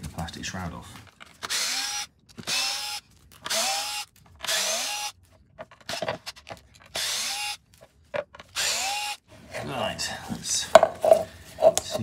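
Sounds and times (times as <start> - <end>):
cordless drill whirring: 1.3 - 7.7, 8.4 - 9.3.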